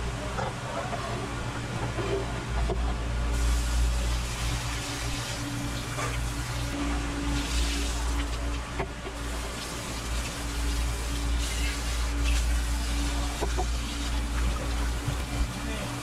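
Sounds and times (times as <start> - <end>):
tap water running into colander: 9.1 - 16.0.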